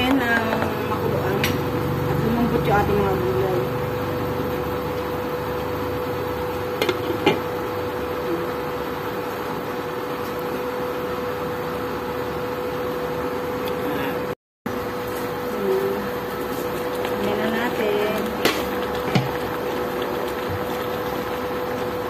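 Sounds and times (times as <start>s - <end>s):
induction cooktop humming: 0.0s - 22.0s.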